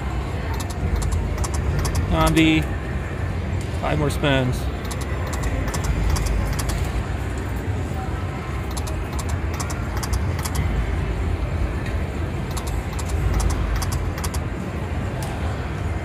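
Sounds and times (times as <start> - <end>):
low casino rumble: 0.0 - 16.0
slot machine reels clicking: 0.5 - 2.6, 4.8 - 6.8, 8.7 - 10.6, 12.5 - 14.4.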